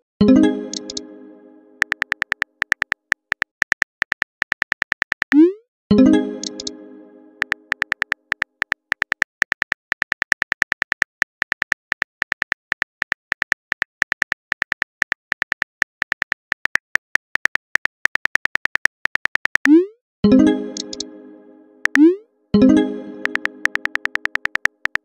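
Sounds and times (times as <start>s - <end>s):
keyboard key clicks: 0.7s - 1.0s, 1.8s - 5.4s, 6.4s - 6.7s, 7.4s - 19.7s, 23.2s - 25.0s.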